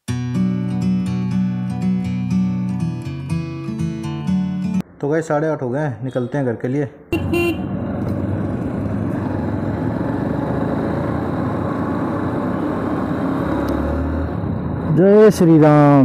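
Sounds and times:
wind and road noise: 0:06.1 - 0:16.0
motorbike engine running: 0:07.2 - 0:13.2.

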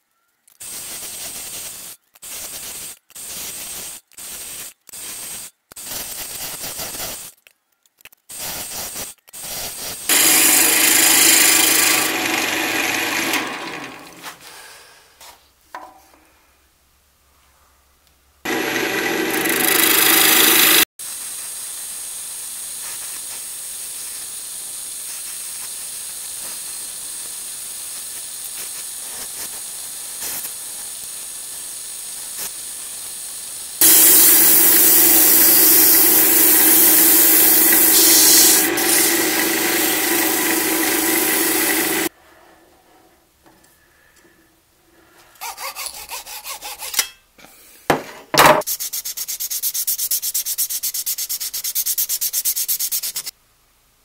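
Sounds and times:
sandpaper sanding spinning wood: 0:08.4 - 0:14.2, 0:18.5 - 0:20.9, 0:31.7 - 0:42.1, 0:45.4 - 0:46.9, 0:48.7 - 0:53.3
wood lathe turning tool cutting: 0:10.1 - 0:14.2, 0:18.5 - 0:20.9, 0:33.8 - 0:42.1.

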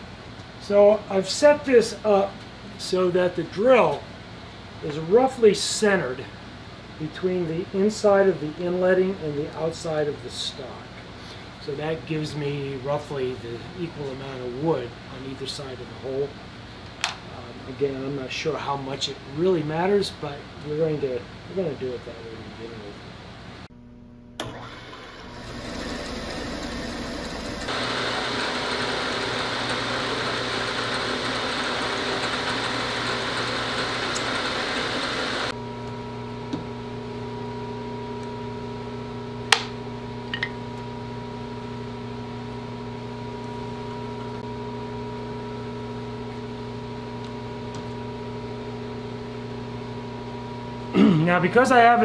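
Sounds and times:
milling machine motor running: 0:24.4 - 0:51.0.

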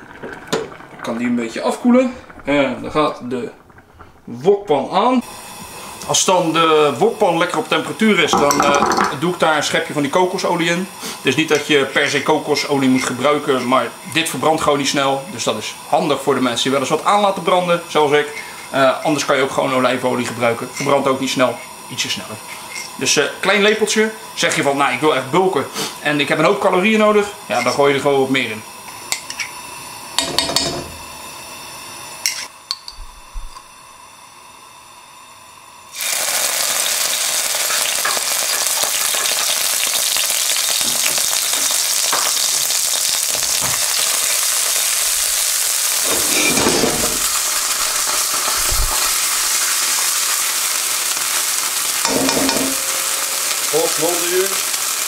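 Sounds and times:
oil sizzling and spitting: 0:00.0 - 0:28.0, 0:35.9 - 0:55.0
spoon knocking on wok: 0:52.0 - 0:53.7.

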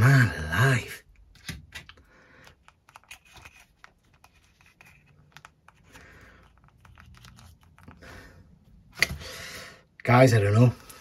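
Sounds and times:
small plastic clicks and scratches: 0:01.3 - 0:08.0.

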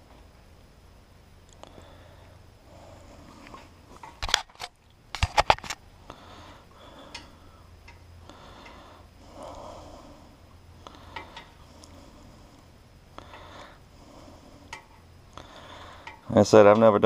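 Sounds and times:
rustling of wires: 0:03.1 - 0:05.9
clicks of small parts handled: 0:04.0 - 0:05.8.

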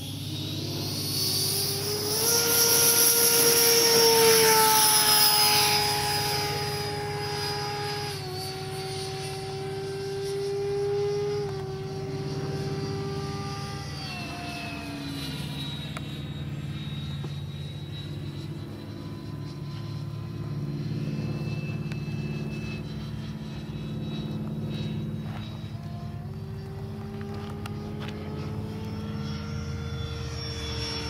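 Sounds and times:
electric ducted fan whine: 0:00.0 - 0:31.0.

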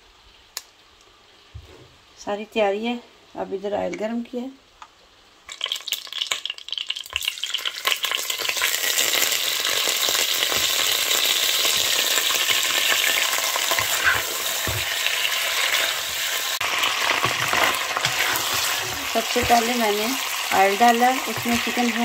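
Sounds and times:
chicken frying in hot oil: 0:05.4 - 0:22.0.

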